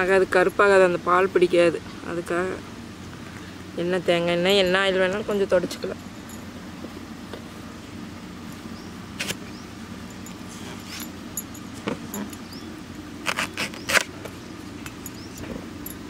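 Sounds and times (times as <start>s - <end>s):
steady low hum: 0.0s - 16.0s
knife cutting plantain: 13.2s - 14.1s.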